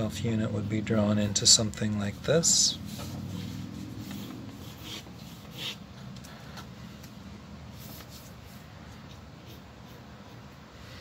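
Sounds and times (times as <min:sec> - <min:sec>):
steady low hum: 0:00.0 - 0:11.0
paper rubbing: 0:02.7 - 0:05.9
pencil scratching on paper: 0:02.7 - 0:06.1, 0:07.8 - 0:11.0.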